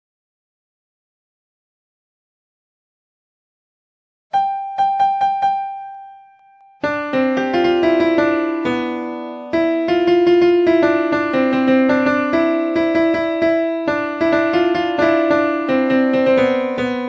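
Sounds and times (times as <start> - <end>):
piano-like keyboard melody: 4.3 - 17.0.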